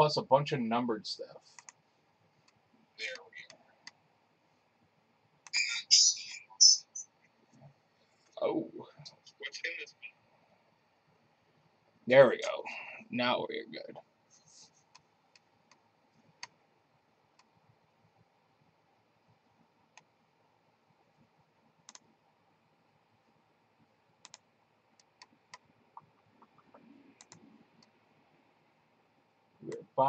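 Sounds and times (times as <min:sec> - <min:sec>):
computer mouse clicks: 0:01.6 - 0:01.8, 0:21.8 - 0:22.1, 0:24.2 - 0:27.9.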